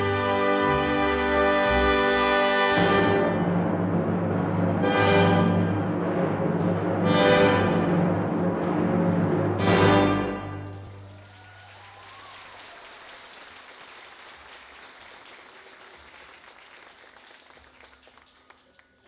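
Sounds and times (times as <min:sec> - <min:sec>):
orchestral note: 0:00.0 - 0:11.1
audience applauding: 0:10.9 - 0:19.0.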